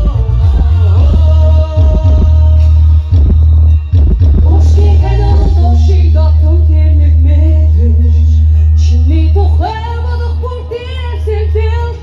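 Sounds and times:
loud steady bass: 0.0 - 12.0
woman singing live: 4.4 - 12.0.

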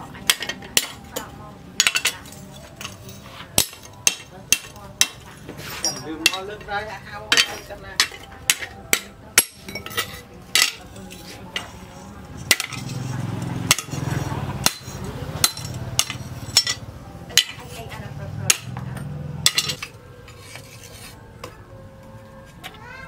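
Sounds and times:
hammer striking steel on anvil: 0.2 - 3.0, 3.6 - 6.6, 7.3 - 10.9, 12.4 - 12.9, 13.7 - 17.8, 18.5 - 20.6.

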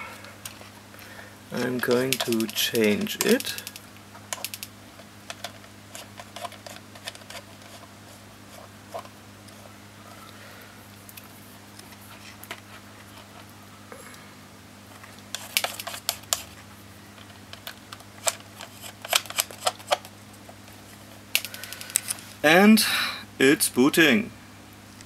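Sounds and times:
light clicks and handling: 1.6 - 7.8.

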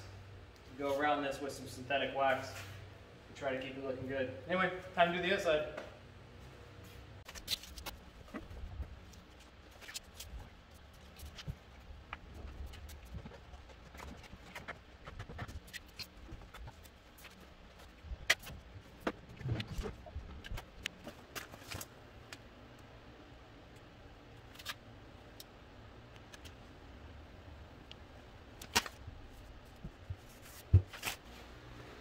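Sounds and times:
paper backing rustling: 29.8 - 31.3.

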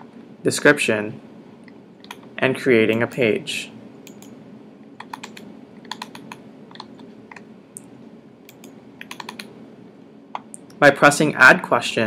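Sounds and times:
faint room hum: 0.0 - 12.0
computer keyboard typing: 5.0 - 7.4, 8.5 - 9.5.

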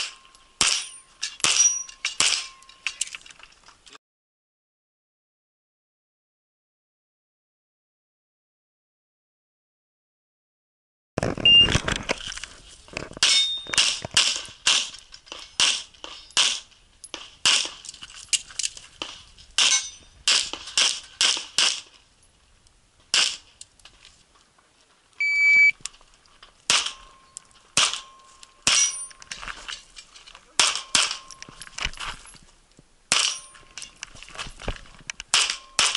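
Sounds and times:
shot timer beep: 25.2 - 25.8.

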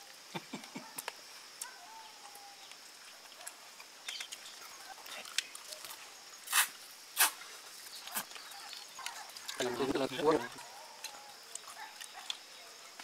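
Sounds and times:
loud sucking sound: 6.5 - 7.4
chewing on bones: 8.0 - 12.5.

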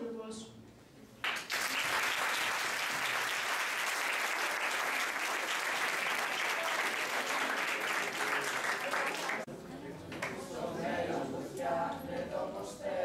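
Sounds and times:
audience applauding: 1.2 - 9.5.

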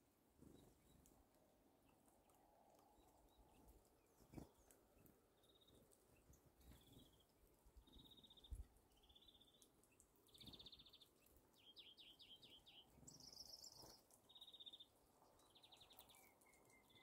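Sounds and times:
bird singing rapid trills: 5.4 - 9.6, 10.2 - 17.0.

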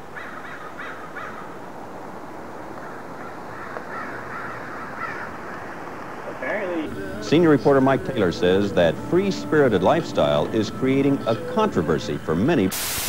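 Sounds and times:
steady background hiss: 0.0 - 13.0
crows cawing: 0.1 - 1.6, 2.8 - 7.2.

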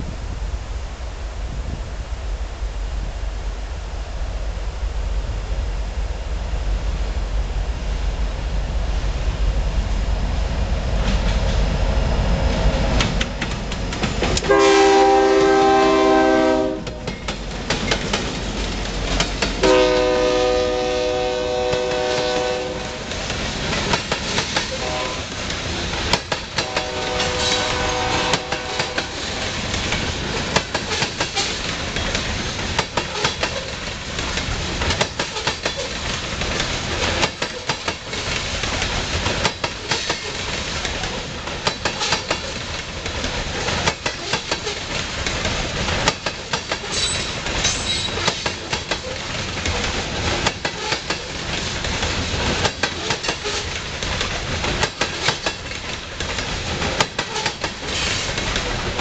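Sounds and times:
freight train rumbling past: 0.0 - 59.0
wheels clacking over rail joints: 12.5 - 59.0
train horn: 14.4 - 17.2, 19.6 - 23.1, 24.7 - 25.4, 26.6 - 29.6.

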